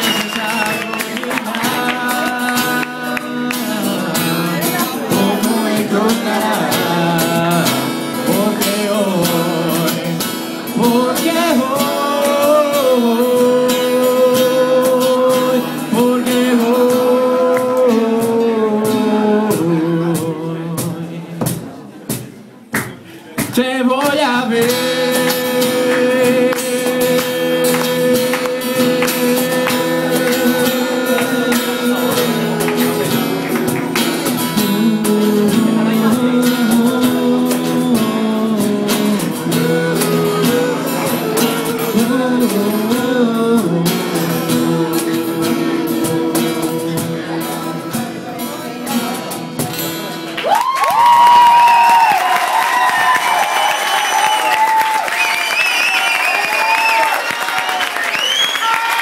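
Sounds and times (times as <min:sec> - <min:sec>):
audience cheering: 0:00.0 - 0:02.0, 0:50.4 - 0:59.0
person singing wordless vocals: 0:00.0 - 0:21.5, 0:23.4 - 0:49.4
acoustic guitar strumming: 0:00.0 - 0:22.2, 0:23.4 - 0:50.4.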